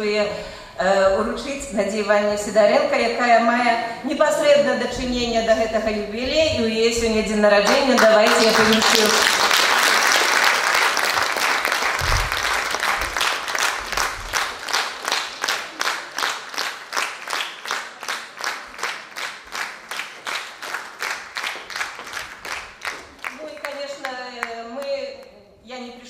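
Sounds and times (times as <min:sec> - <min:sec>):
people applauding: 0:07.7 - 0:24.6.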